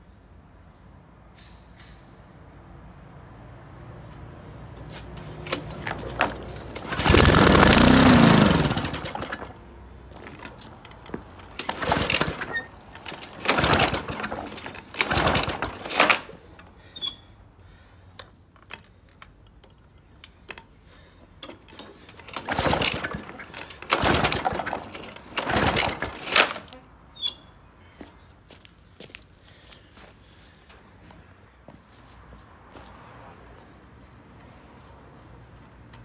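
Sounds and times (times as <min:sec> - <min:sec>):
lawn mower engine sputtering: 0:04.9 - 0:16.7, 0:21.4 - 0:26.8.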